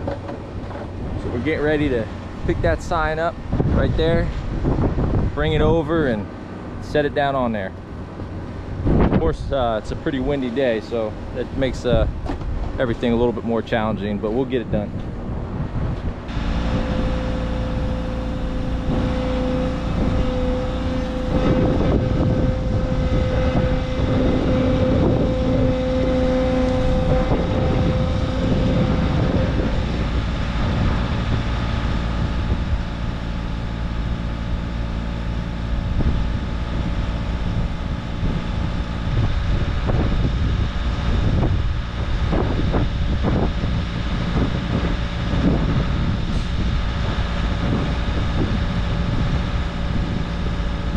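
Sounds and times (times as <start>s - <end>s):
wind on microphone: 0.0s - 6.7s, 7.3s - 50.9s
diesel engine running: 0.0s - 50.9s
high whine: 0.0s - 50.9s.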